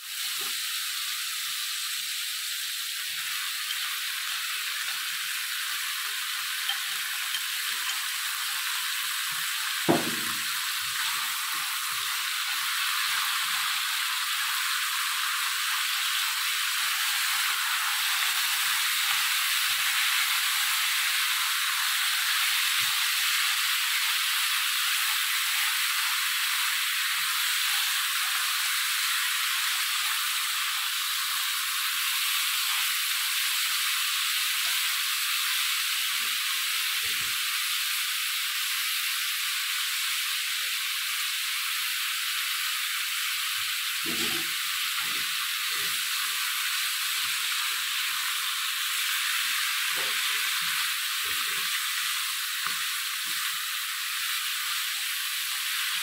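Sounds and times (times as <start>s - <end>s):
food sizzling in a frying pan: 0.0s - 56.0s
sharp knock: 9.9s - 10.6s.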